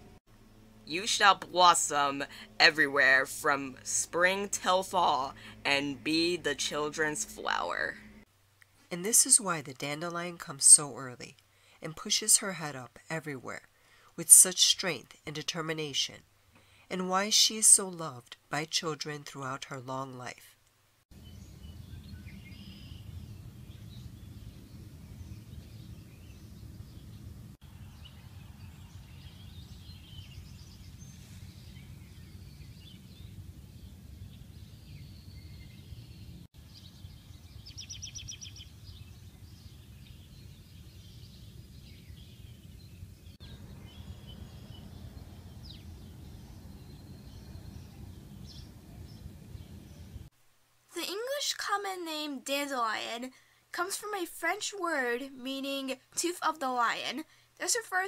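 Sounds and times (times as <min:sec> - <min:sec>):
steady low rumble: 0:21.1 - 0:35.2, 0:38.8 - 0:50.3
bird chirps and calls: 0:27.9 - 0:50.3.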